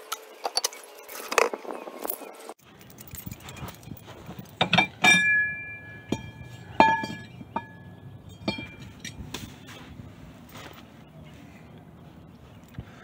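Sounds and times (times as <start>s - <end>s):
metal knocks with ringing: 4.6s - 9.2s.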